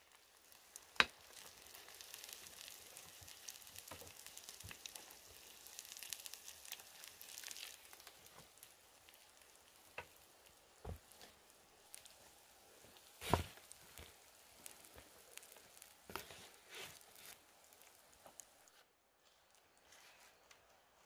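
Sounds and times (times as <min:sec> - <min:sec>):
mussels sizzling on grill: 0:00.0 - 0:18.8.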